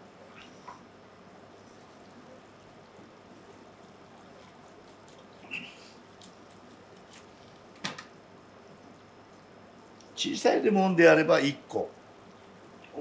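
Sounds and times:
juice trickling into dish: 0.3s - 10.2s.

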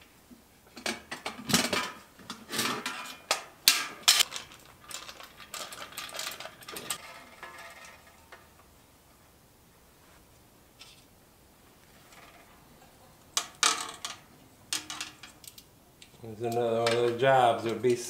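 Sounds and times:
metallic clicking and rattling: 0.8s - 8.6s, 13.4s - 15.7s.

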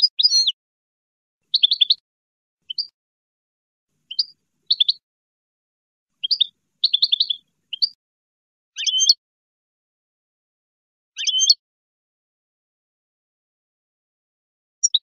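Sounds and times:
goldfinch chirping: 0.0s - 0.6s, 1.5s - 2.0s, 2.7s - 2.9s, 4.0s - 5.0s, 6.2s - 8.0s, 8.8s - 9.2s, 11.2s - 11.6s, 14.8s - 15.0s.

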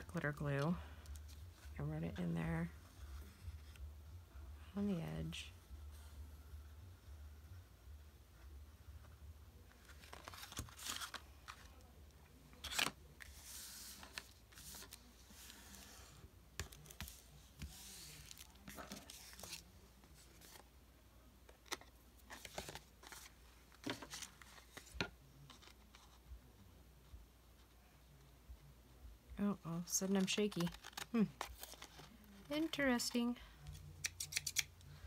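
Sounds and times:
paper rustling and sliding: 12.6s - 20.6s.

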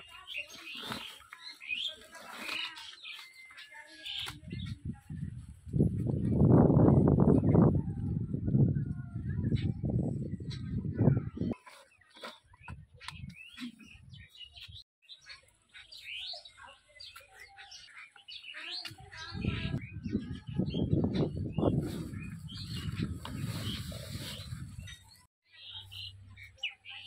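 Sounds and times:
small birds chirping: 0.0s - 5.3s, 8.9s - 27.0s
rough scuffing and rustling: 0.1s - 6.4s, 21.6s - 25.3s.

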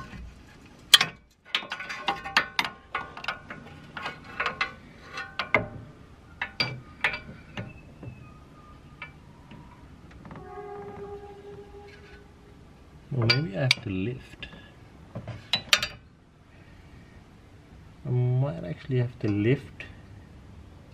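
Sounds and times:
metallic clanks and clinks: 0.9s - 5.7s
short steady squeak: 9.6s - 12.6s.

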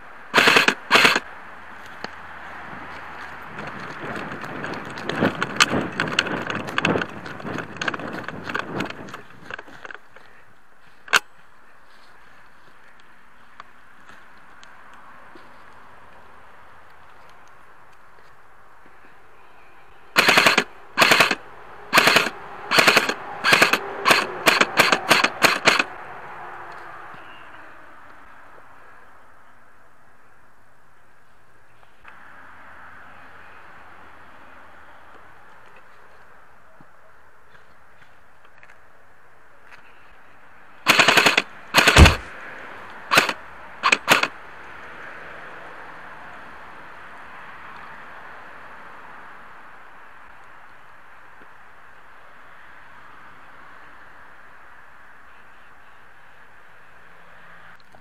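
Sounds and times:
airsoft rifle full-auto bursts: 0.3s - 1.2s, 20.2s - 25.9s, 40.9s - 42.3s, 43.1s - 44.3s.

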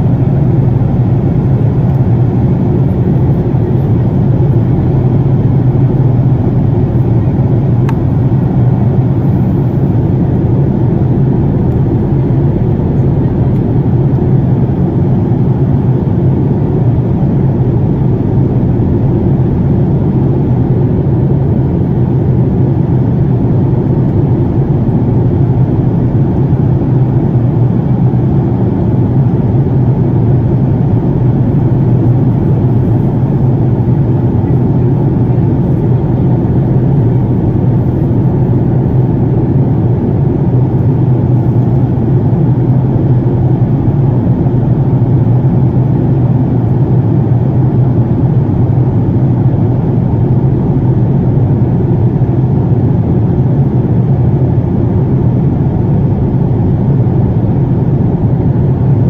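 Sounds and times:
jet airliner cabin drone: 0.0s - 59.0s.

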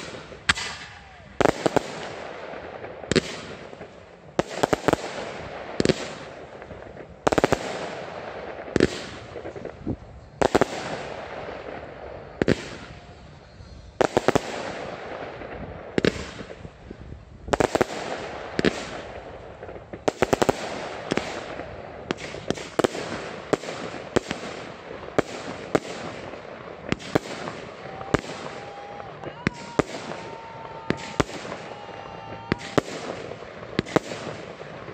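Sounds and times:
fireworks hissing and crackling: 0.0s - 34.9s
fireworks launch pops: 26.8s - 34.9s.

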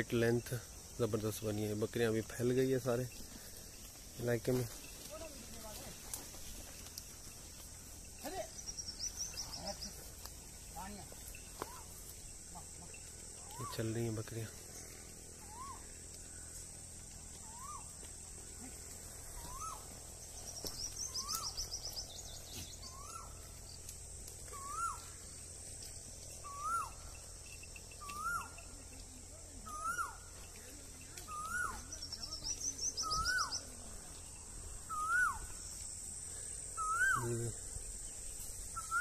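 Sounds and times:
high insect hiss: 0.0s - 39.0s
bird rapid trill: 26.4s - 27.2s, 28.0s - 28.6s, 31.3s - 33.8s.

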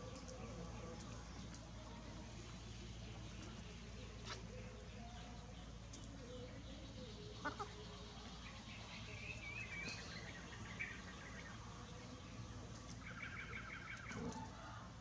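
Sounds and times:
steady low hum: 0.0s - 15.0s
chick peeping: 5.9s - 12.1s
chicken clucks: 7.3s - 8.6s.

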